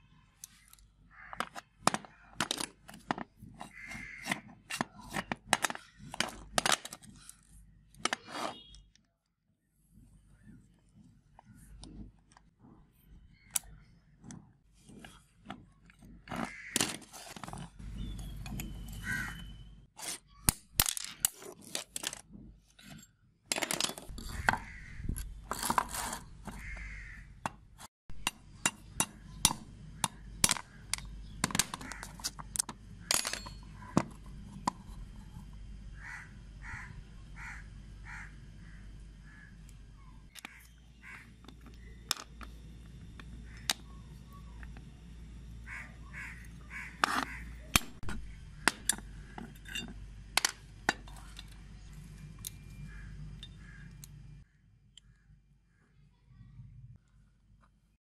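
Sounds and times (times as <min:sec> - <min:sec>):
metal parts clinking: 0:31.4 - 0:33.8, 0:47.7 - 0:52.7.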